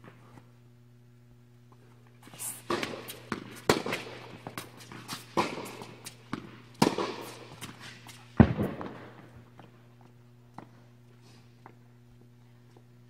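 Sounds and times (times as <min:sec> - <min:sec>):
steady low hum: 0:00.0 - 0:13.0
tennis racket hitting ball: 0:02.4 - 0:08.2.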